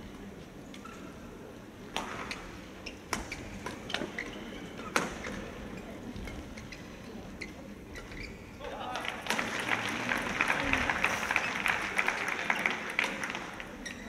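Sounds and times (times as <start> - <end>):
court shoes squeaking: 0.5 - 1.3, 1.9 - 8.6, 13.8 - 14.0.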